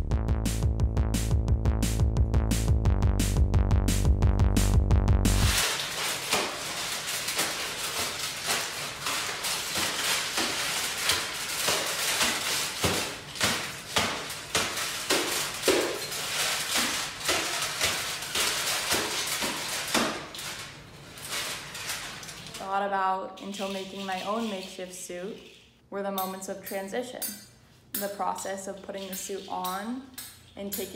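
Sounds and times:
foil and cardboard crinkling: 5.4s - 25.5s.

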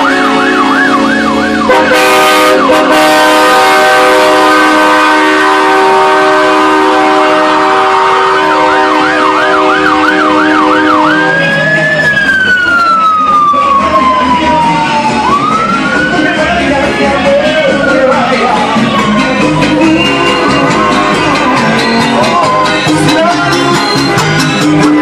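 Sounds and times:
truck air horns blasting: 0.0s - 11.7s, 19.4s - 25.0s
siren yelping and wailing: 0.0s - 25.0s.

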